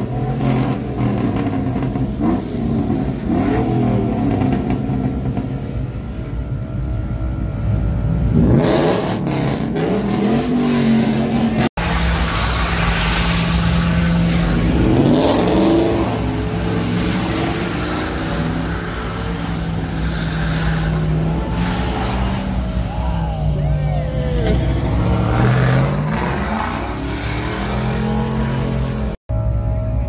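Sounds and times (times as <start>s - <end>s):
tires spinning on pavement: 8.0s - 29.2s
truck engine revving: 8.2s - 29.2s.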